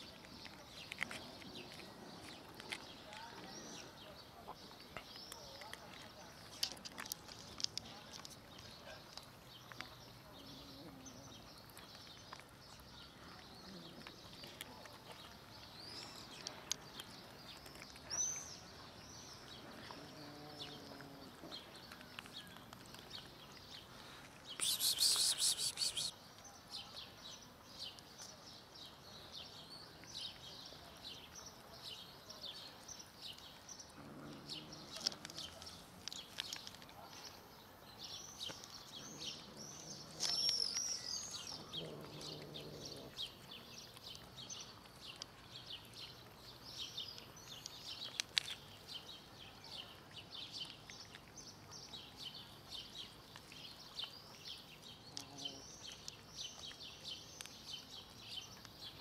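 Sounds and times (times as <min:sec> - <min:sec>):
cats chewing and smacking: 0:00.0 - 0:59.0
small birds chirping: 0:00.0 - 0:59.0.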